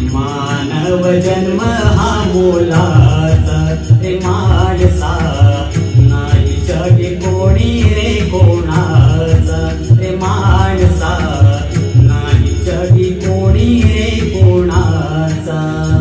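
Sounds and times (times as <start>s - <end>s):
backing track with drum beat: 0.0s - 16.0s
man singing: 0.0s - 16.0s.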